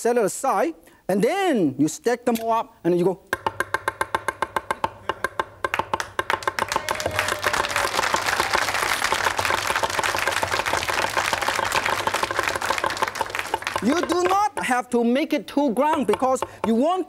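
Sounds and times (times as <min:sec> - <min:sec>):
audience applause: 0:06.0 - 0:14.1.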